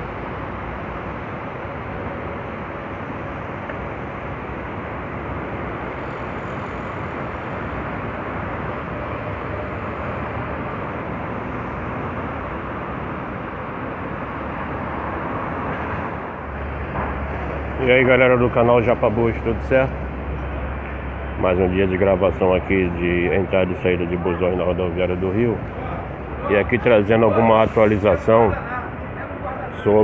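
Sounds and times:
city road traffic rumble: 0:00.0 - 0:30.0.

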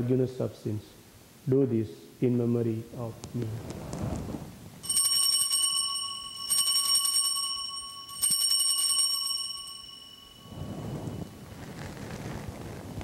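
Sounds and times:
altar bells ringing: 0:04.8 - 0:11.7.

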